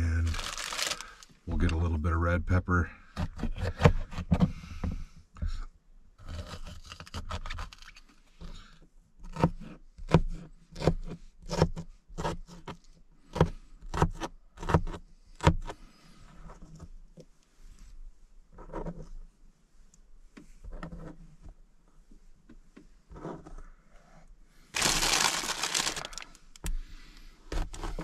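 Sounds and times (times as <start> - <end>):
scraping and rustling: 0.2 - 1.4, 24.7 - 26.6
knife chopping on a board: 9.3 - 15.7.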